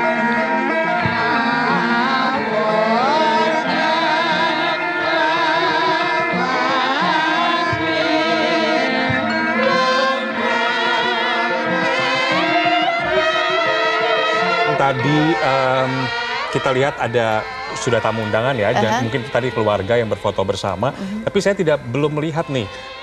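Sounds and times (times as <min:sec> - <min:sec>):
person singing long wavering notes: 0:00.0 - 0:23.0
gamelan music: 0:16.6 - 0:19.6.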